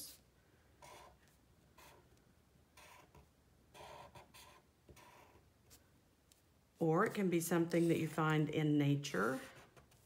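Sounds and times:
felt-tip marker scratching on paper: 0.8 - 1.2, 1.8 - 2.1, 2.8 - 5.4.

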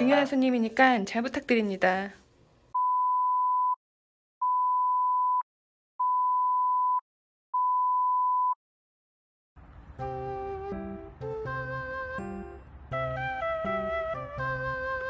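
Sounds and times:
censor bleep tone: 2.8 - 3.8, 4.4 - 5.4, 6.0 - 7.0, 7.6 - 8.6
background music: 9.9 - 15.0.

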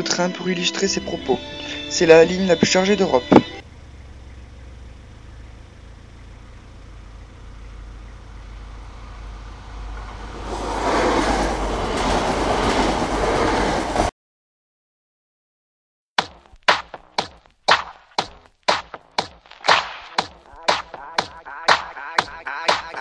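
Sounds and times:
passenger train passing: 0.0 - 3.6, 8.8 - 14.1
wheels on rails: 8.8 - 14.1.

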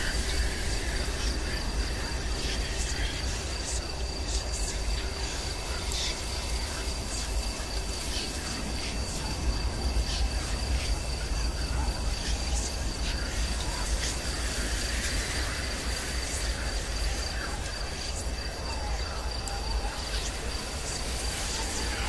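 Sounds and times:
high cricket trill: 0.0 - 22.0.

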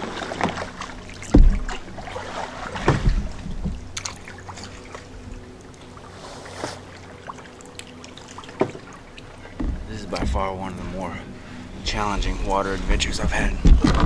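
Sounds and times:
water dripping: 0.0 - 6.1, 6.9 - 10.4
paddle strokes in water: 0.0 - 14.0
knocks on boat: 1.3 - 1.8, 2.7 - 3.8, 9.6 - 10.5, 13.1 - 14.0.

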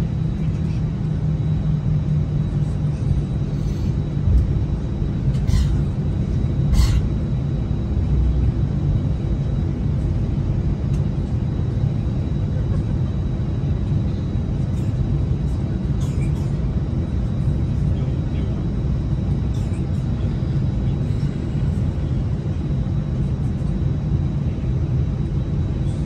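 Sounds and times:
airplane cabin rumble taxiing: 0.0 - 26.0.

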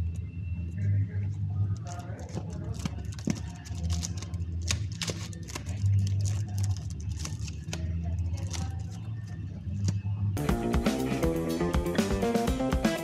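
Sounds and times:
low steady hum: 0.0 - 10.8
guitar music: 10.4 - 13.0.

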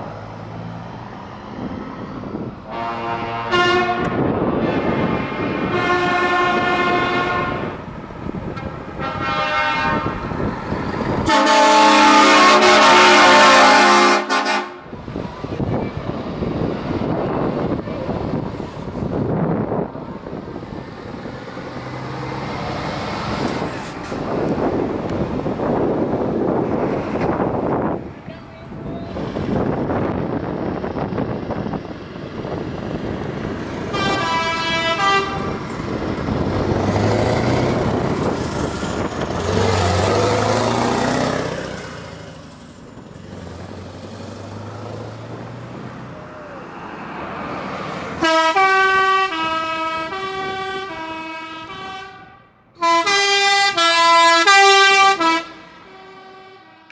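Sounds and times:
heavy trucks driving past: 0.0 - 56.9
air horn blast: 2.7 - 7.8, 9.0 - 10.2, 11.2 - 14.9, 33.9 - 35.6, 48.2 - 56.9
musical truck horn tune: 2.7 - 7.8, 8.9 - 10.3, 11.2 - 14.9, 33.9 - 35.6, 48.2 - 56.9.

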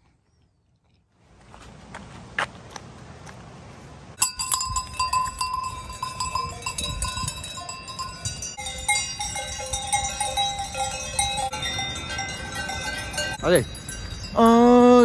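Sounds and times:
cowbells clanking: 4.2 - 15.0.

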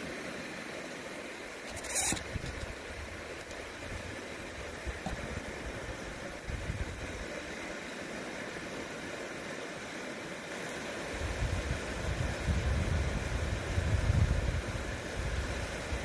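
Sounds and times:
steady outdoor hiss: 0.0 - 16.0
wind rumble on microphone: 1.8 - 3.2, 4.8 - 7.2, 11.2 - 16.0.

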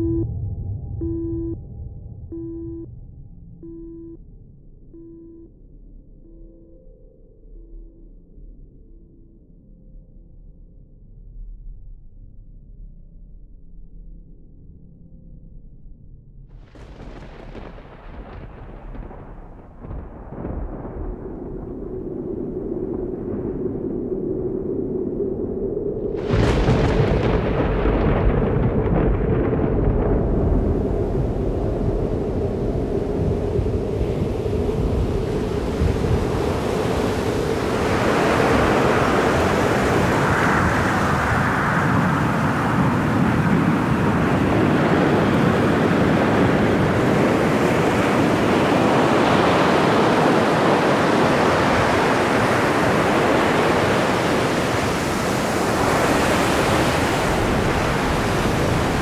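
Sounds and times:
low droning rumble: 0.0 - 5.5
wind: 16.6 - 59.0
breaking waves: 16.7 - 59.0.

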